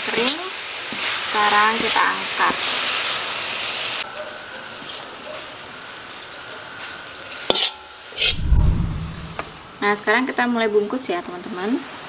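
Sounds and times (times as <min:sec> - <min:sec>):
filling sizzling in a wok: 0:00.0 - 0:08.4.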